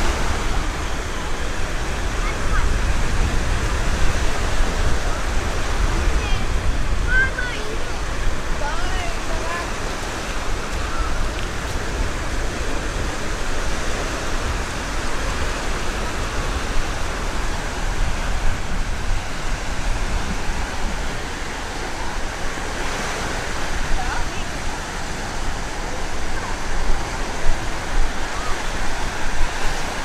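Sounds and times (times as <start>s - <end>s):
surf washing onto beach: 0.0s - 30.0s.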